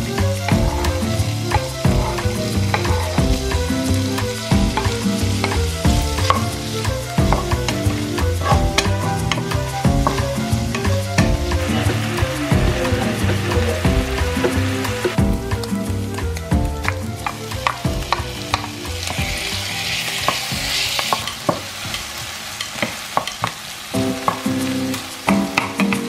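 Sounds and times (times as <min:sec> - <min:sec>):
meat sizzling in hot oil: 0:00.0 - 0:26.0
wooden spatula scraping a pan: 0:00.5 - 0:15.2, 0:17.2 - 0:23.7.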